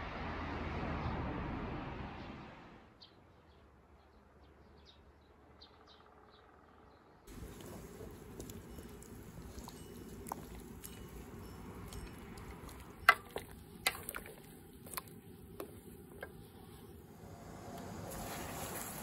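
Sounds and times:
sharp splashes and drips: 0:07.3 - 0:16.3
greens sloshing in water: 0:07.3 - 0:16.9.

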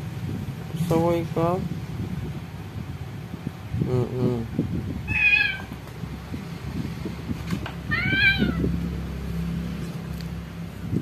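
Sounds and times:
cat meowing: 0:05.0 - 0:05.8, 0:07.9 - 0:08.8.

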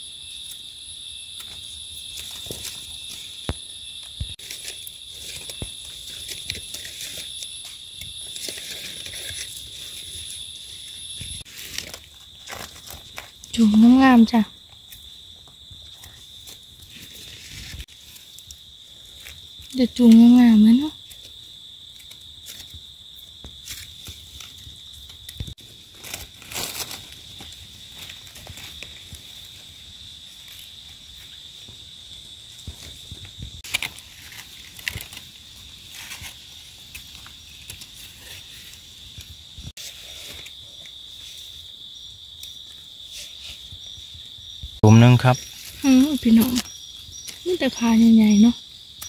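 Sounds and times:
high-pitched insect chorus: 0:00.0 - 0:49.0
knife rustling in dry leaves: 0:04.3 - 0:13.6, 0:15.9 - 0:19.6, 0:23.6 - 0:31.4, 0:32.7 - 0:41.9.

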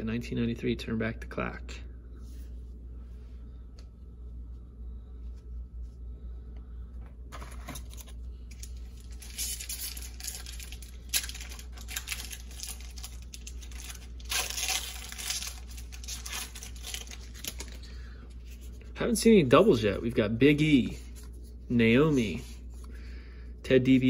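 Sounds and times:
wrapper tearing and crinkling: 0:07.6 - 0:17.8.

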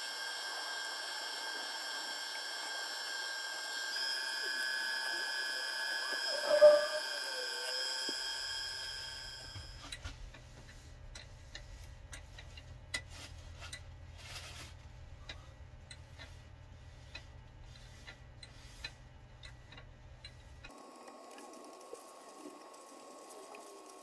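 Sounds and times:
wood lathe humming: 0:00.0 - 0:09.8
paper towel rubbing wood: 0:06.2 - 0:07.9
light ticks: 0:18.0 - 0:23.8.

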